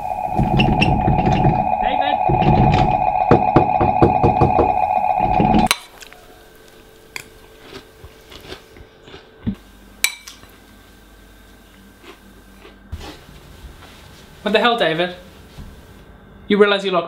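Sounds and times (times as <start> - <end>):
sharp knocks: 0.3 - 5.7.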